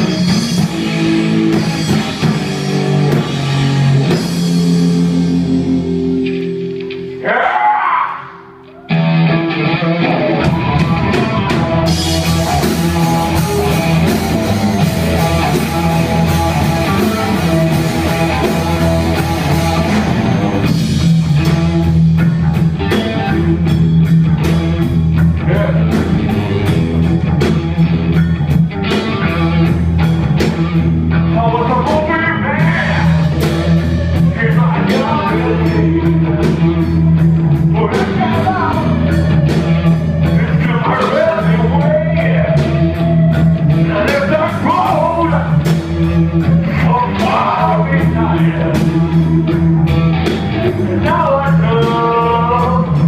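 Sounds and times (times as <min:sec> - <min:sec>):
drum kit: 0:00.0 - 0:07.6, 0:08.6 - 0:53.0
bass guitar: 0:00.0 - 0:53.0
distorted electric guitars: 0:00.0 - 0:53.0
lead vocal singing: 0:34.2 - 0:37.0, 0:40.2 - 0:45.6, 0:46.4 - 0:49.4, 0:50.5 - 0:53.0.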